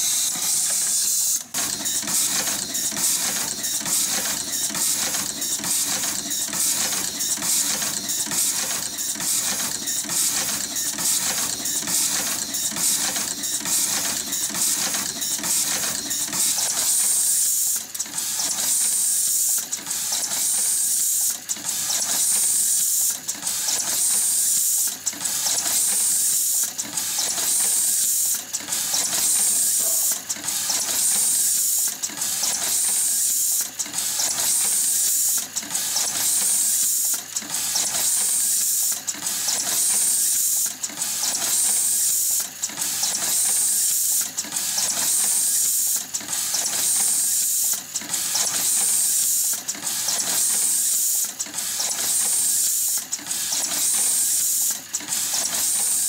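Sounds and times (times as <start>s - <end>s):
machine high hiss: 0.0s - 1.4s, 29.2s - 30.2s
mechanical clatter: 0.0s - 56.0s.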